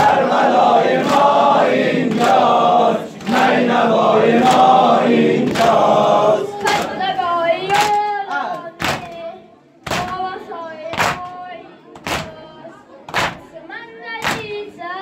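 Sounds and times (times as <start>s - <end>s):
men chanting in unison: 0.0s - 7.3s
lead voice singing: 0.0s - 9.3s
chest-beating slaps: 1.0s - 1.4s, 2.0s - 3.6s, 4.4s - 4.8s, 5.4s - 5.9s.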